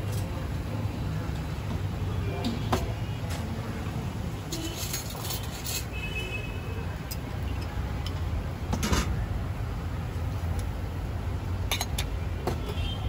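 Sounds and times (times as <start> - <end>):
street traffic rumble: 0.0 - 13.0
kitchen utensils clinking: 4.5 - 6.1.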